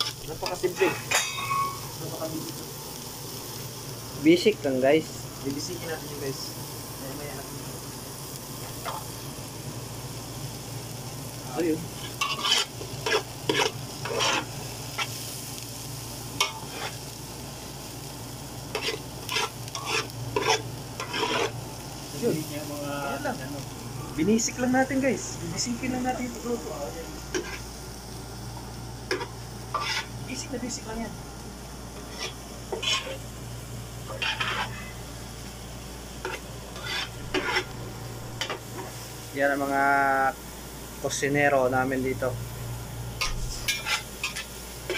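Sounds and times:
food sizzling in oil: 0.0 - 44.9
steady low hum: 0.5 - 44.9
metal spatula scraping a pot: 12.0 - 15.1, 16.4 - 17.0, 18.7 - 21.6, 29.1 - 30.1, 32.0 - 33.2, 34.1 - 34.9, 36.2 - 37.7, 43.2 - 44.9.

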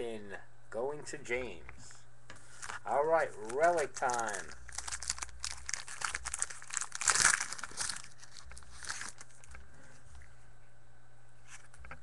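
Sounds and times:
wrapper tearing and crinkling: 2.6 - 9.6.

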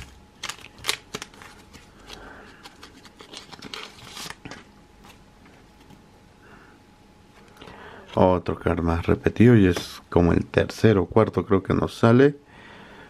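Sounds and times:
plastic wrapper crinkling: 0.0 - 4.7.

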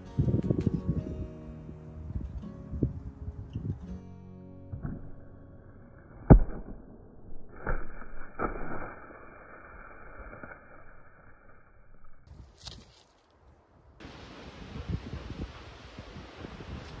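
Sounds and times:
arrow smacking plastic target: 6.1 - 9.0.

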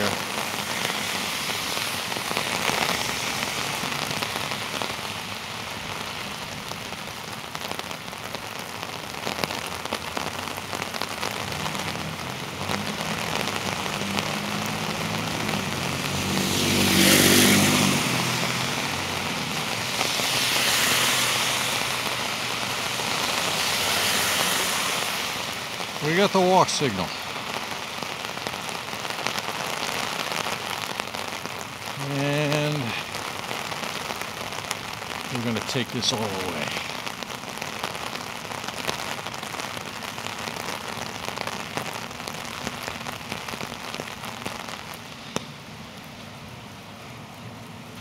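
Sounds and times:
heavy rain on street: 0.0 - 48.0
wet tyre hiss: 11.6 - 27.8
passing vehicle engine hum: 11.7 - 25.5.

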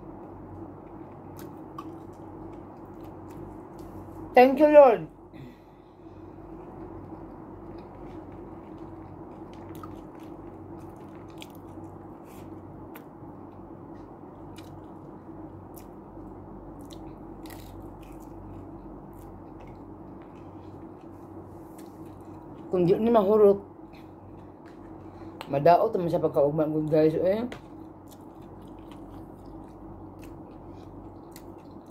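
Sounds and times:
steady low hum: 0.0 - 31.9
person chewing with crunches: 0.5 - 4.3, 6.4 - 22.8, 27.6 - 31.9.

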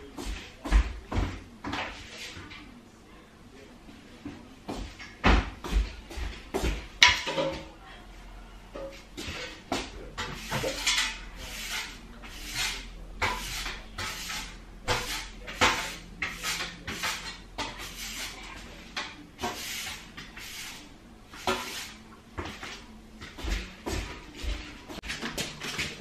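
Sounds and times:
broom sweeping a tiled floor: 8.8 - 26.0.

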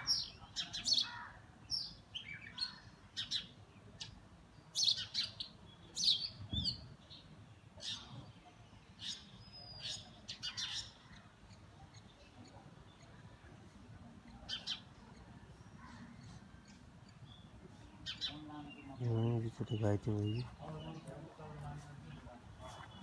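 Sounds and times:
magpie-robins chirping: 9.0 - 13.2, 14.2 - 21.1.

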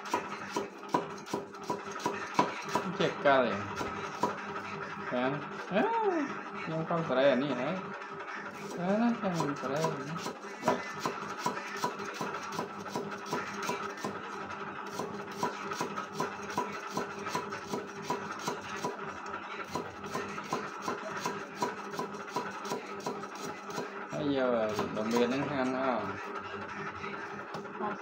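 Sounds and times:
cleaver chopping on wooden block: 0.1 - 2.9, 10.6 - 14.2, 14.9 - 19.0.

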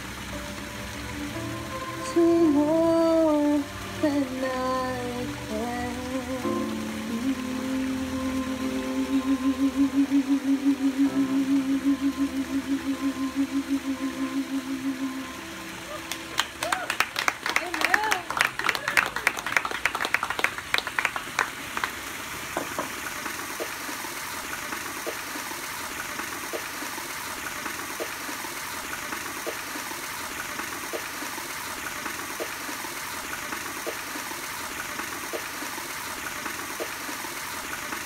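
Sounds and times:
wall fountain splashing: 0.0 - 38.0
applause: 15.9 - 23.0.

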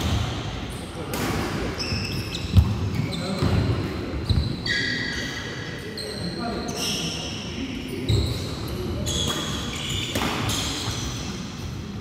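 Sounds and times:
shoe squeaks on wooden floor: 1.8 - 3.5, 4.2 - 7.3, 8.0 - 11.2
racket hitting shuttlecock: 9.2 - 10.9.

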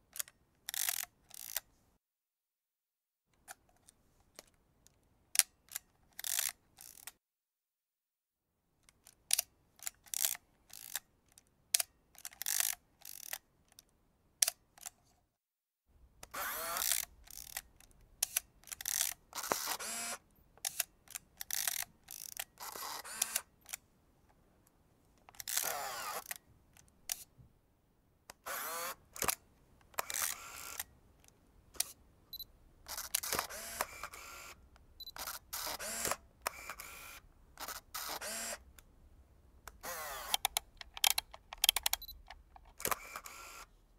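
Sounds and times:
camera mechanical strokes: 0.7 - 1.6, 6.2 - 7.2, 9.8 - 11.0, 12.2 - 13.4, 16.3 - 23.8, 25.3 - 26.4, 28.4 - 29.4, 30.0 - 30.9, 31.8 - 32.0, 32.8 - 38.6, 39.8 - 43.8
camera shutter clicks: 0.7 - 1.6, 6.2 - 7.1, 16.3 - 20.9, 21.5 - 23.8, 25.4 - 26.4, 28.4 - 29.4, 30.0 - 30.9, 32.9 - 38.6, 39.8 - 43.7.

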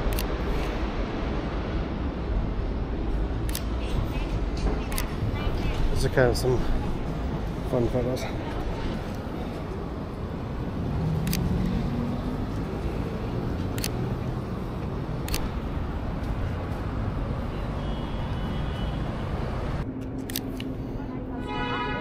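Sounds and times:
street traffic rumble: 0.0 - 22.0
camera shutter clicks: 4.9 - 5.1, 11.2 - 11.5, 13.7 - 14.0, 15.2 - 15.6.

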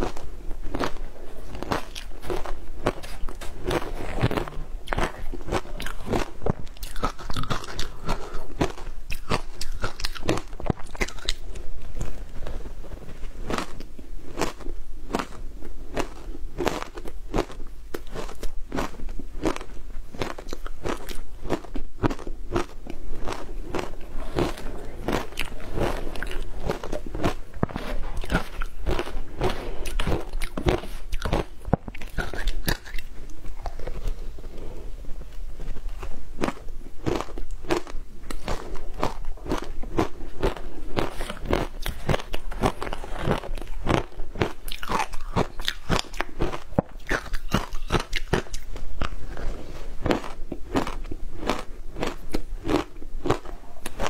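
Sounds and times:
ice being bitten and chewed: 0.0 - 12.4, 13.3 - 34.2, 35.7 - 54.0.

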